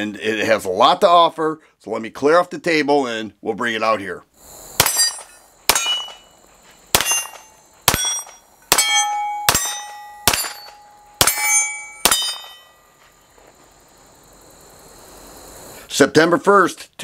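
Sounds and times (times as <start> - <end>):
pistol shots: 4.8 - 6.3, 6.9 - 11.4, 12.0 - 12.6
steel targets clanging: 4.8 - 6.4, 7.0 - 13.0.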